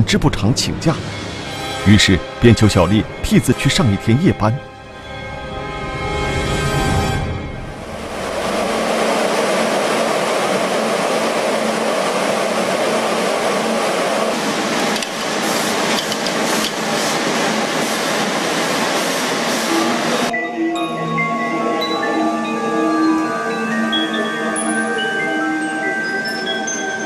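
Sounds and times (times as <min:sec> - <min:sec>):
textile machines clattering: 0:09.1 - 0:19.8.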